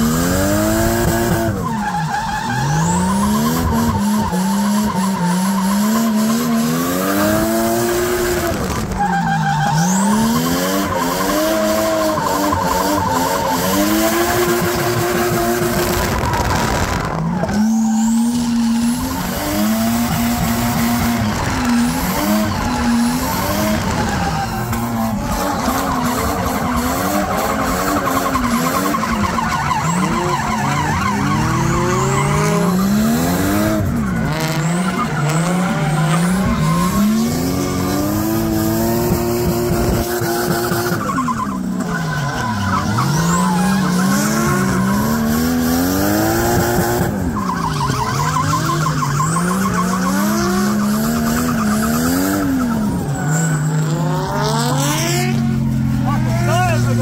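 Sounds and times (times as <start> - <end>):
car engines revving: 0.0 - 57.0
tyres squealing: 17.3 - 38.5.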